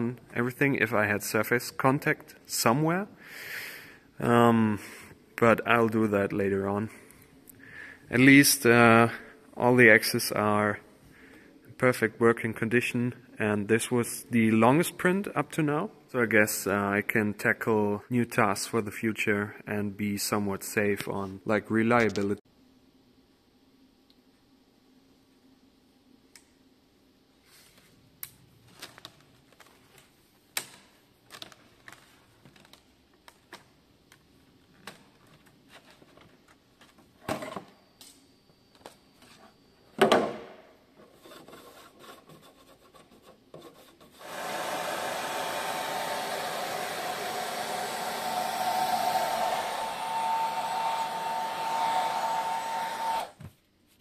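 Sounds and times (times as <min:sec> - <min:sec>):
heat gun blowing: 0:44.2 - 0:53.4.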